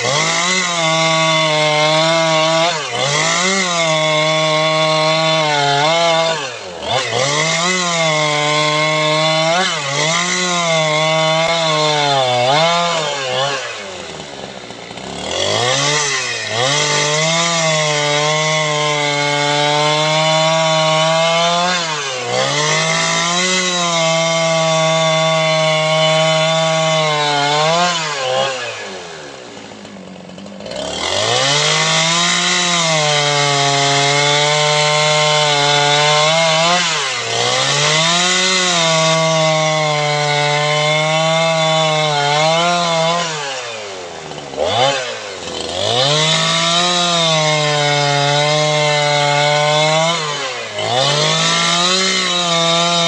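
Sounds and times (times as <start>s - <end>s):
chainsaw cutting log: 0.0s - 53.0s.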